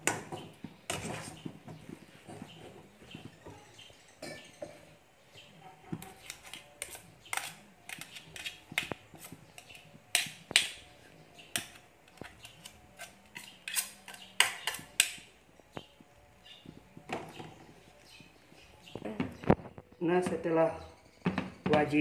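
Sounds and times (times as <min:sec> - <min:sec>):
metal spatula scraping a wok: 0:00.9 - 0:01.4, 0:06.0 - 0:15.2.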